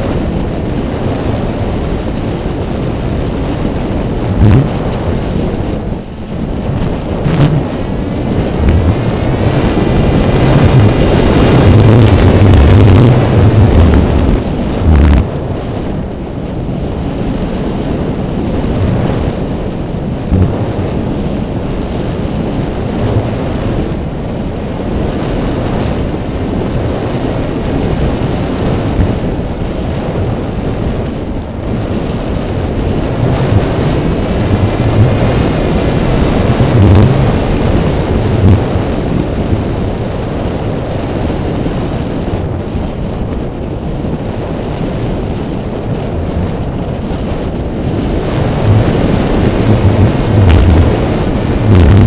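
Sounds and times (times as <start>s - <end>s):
wind buffeting microphone: 0.0s - 52.0s
low gust thumps: 3.8s - 15.6s, 20.2s - 21.8s, 32.9s - 38.8s, 48.5s - 52.0s.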